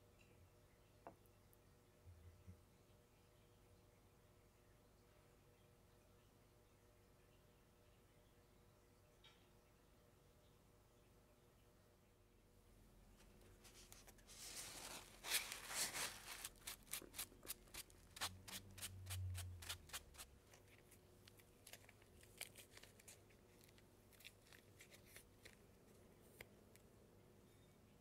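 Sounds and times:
cloth rustling on mushrooms: 13.4 - 25.6.

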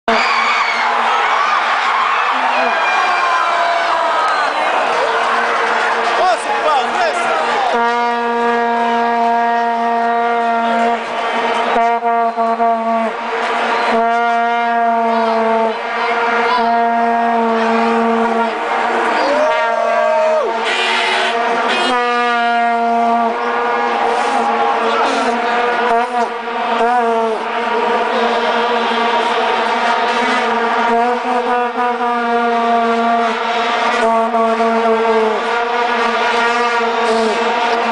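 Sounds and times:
vuvuzela blasts: 0.1 - 37.9.

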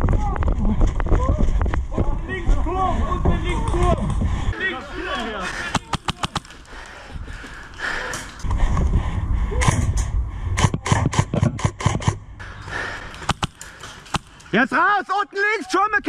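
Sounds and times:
airsoft rifle shots: 5.7 - 6.6, 13.2 - 14.4.

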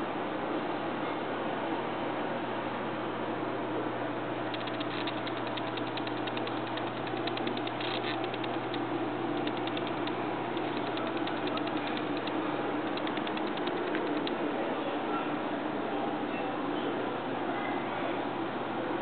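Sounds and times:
steady background hum: 0.0 - 19.0
rapid mechanical clicking: 4.4 - 14.4.

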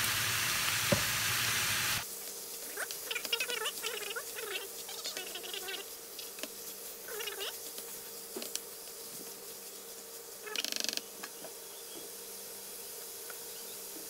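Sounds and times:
meat sizzling in a wok: 0.0 - 7.6.

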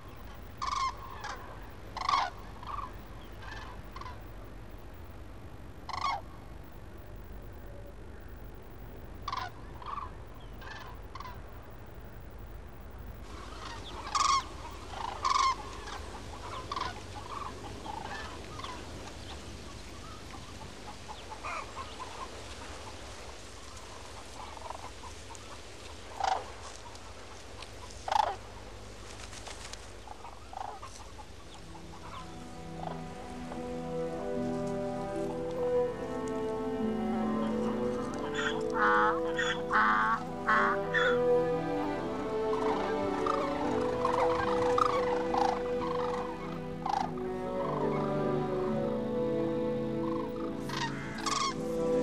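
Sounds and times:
waterfowl calling: 0.0 - 5.1, 5.8 - 28.7, 29.6 - 52.0
low background noise: 0.0 - 52.0.

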